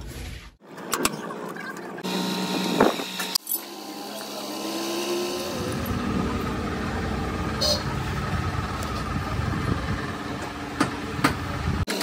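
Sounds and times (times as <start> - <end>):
metal tools working: 0.8 - 6.4.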